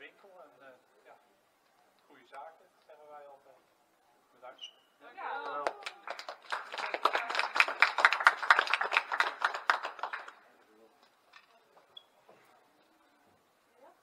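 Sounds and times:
people applauding: 5.3s - 10.5s.

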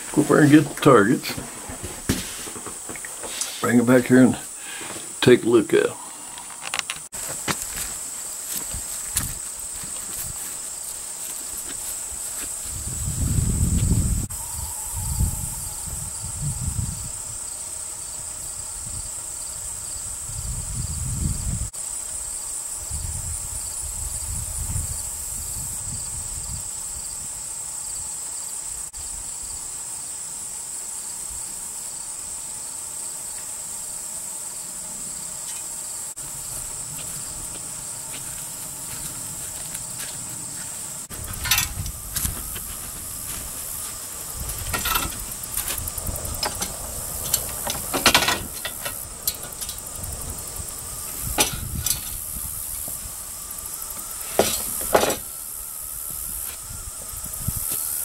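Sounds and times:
crickets trilling: 0.0s - 58.0s.

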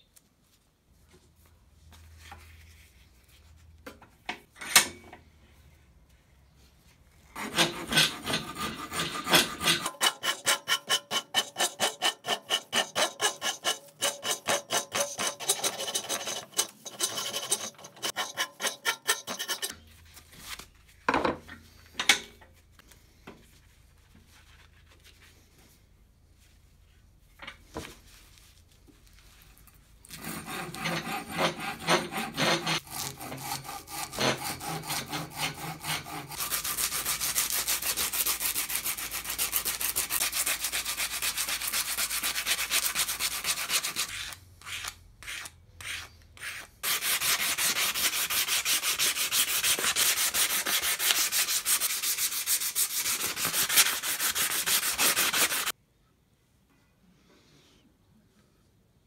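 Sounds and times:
sandpaper scratching on wood: 7.4s - 19.7s, 30.2s - 55.7s.

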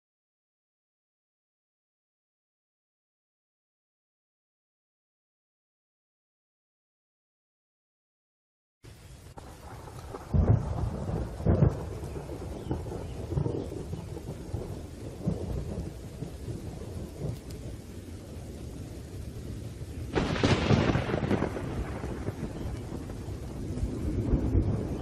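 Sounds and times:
steady rain: 8.8s - 25.0s
thunder claps and rolls: 9.3s - 25.0s.

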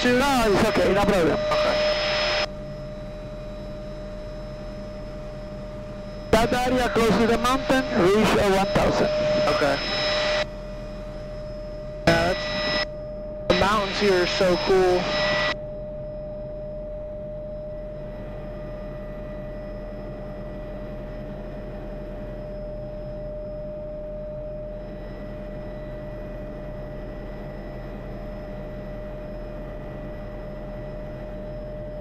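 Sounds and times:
helicopter cabin rumble and whine: 0.0s - 32.0s.

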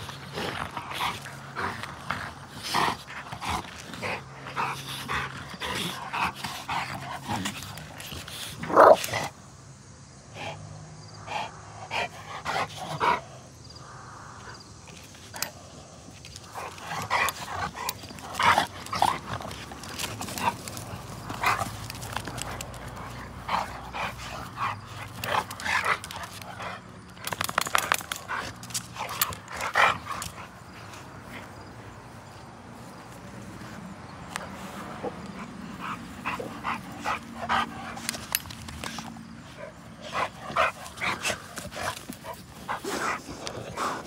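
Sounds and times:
dogs play growling and yipping: 0.0s - 9.5s, 10.3s - 44.0s.

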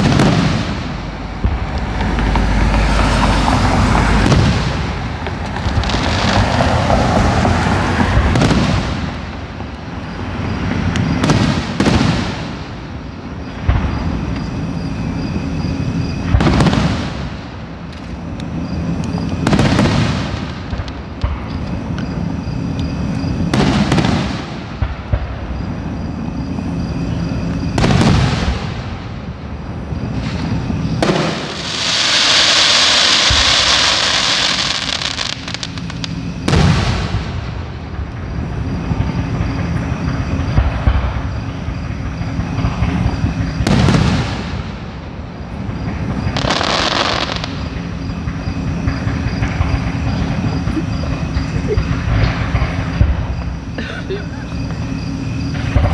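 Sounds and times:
distant firework booms: 0.0s - 9.7s, 10.4s - 14.6s, 16.2s - 17.8s, 19.4s - 21.5s, 23.3s - 26.0s, 27.6s - 29.4s, 30.0s - 50.8s
high hiss: 29.9s - 39.6s.

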